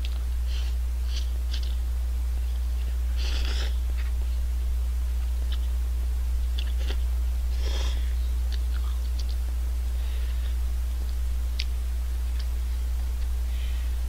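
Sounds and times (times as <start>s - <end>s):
steady low hum: 0.0s - 14.0s
chewing with wet mouth clicks: 8.5s - 9.4s.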